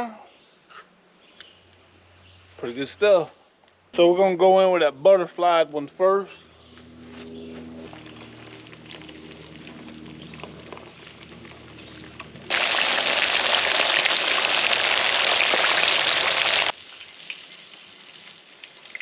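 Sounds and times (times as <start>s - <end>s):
fish sizzling in hot oil: 10.7s - 19.0s.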